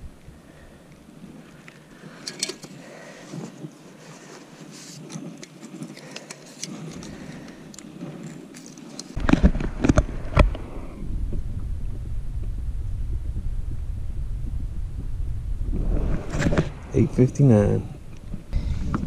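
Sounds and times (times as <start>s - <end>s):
fishing gear clicking and rattling: 1.6s - 10.0s
low rumble: 9.2s - 19.0s.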